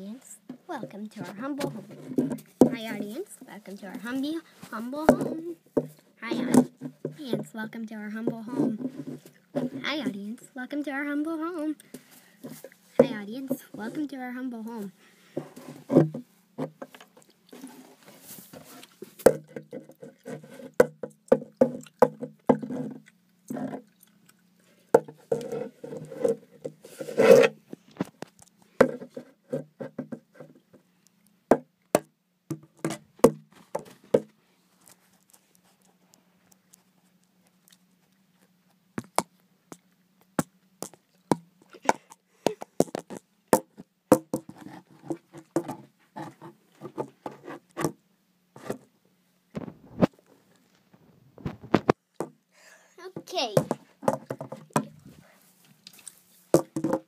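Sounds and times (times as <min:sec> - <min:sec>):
handling knocks and rubbing: 0:00.5 - 0:07.6, 0:08.2 - 0:10.3, 0:12.0 - 0:14.1, 0:44.1 - 0:48.0.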